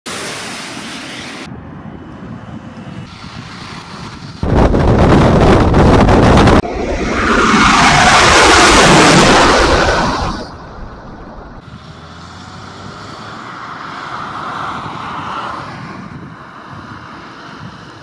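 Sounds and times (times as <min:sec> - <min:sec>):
jet engines humming: 0:00.1 - 0:11.6
wind rushing: 0:01.7 - 0:11.6
loud rushing roar: 0:03.0 - 0:16.2.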